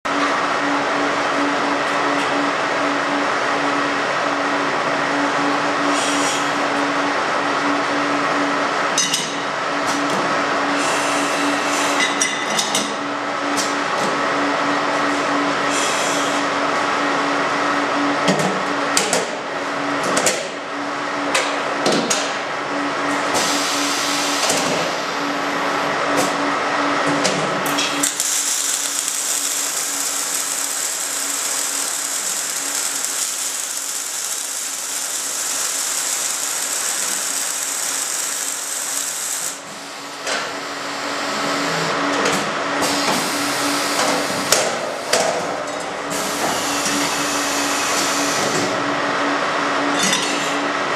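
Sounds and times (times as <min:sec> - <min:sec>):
machine hum: 0:24.0 - 0:42.0
arc welding hiss: 0:28.0 - 0:40.2.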